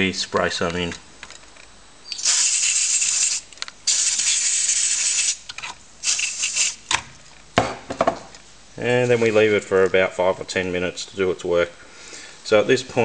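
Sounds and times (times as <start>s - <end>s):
aerosol can spraying: 2.1s - 6.8s.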